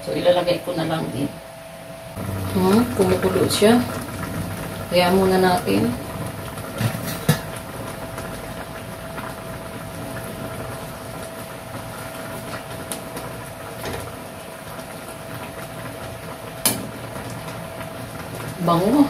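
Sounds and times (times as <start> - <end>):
steady hum: 0.0 - 13.8
liquid boiling in a pan: 2.1 - 19.0.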